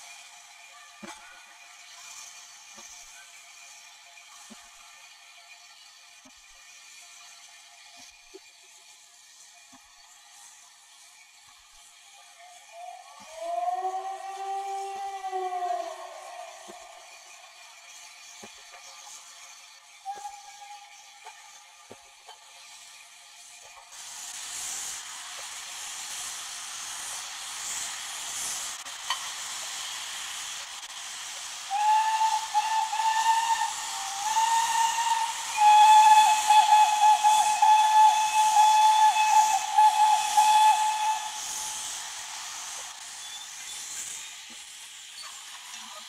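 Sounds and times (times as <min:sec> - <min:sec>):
steam locomotive hissing: 0:00.0 - 0:46.0
steam locomotive whistle: 0:11.9 - 0:21.9, 0:22.5 - 0:46.0.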